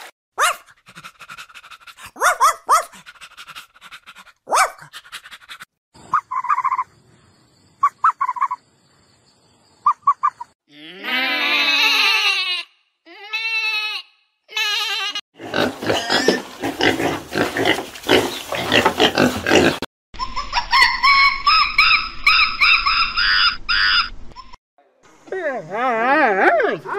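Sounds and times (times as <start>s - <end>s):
rough grunting: 15.4s - 19.9s.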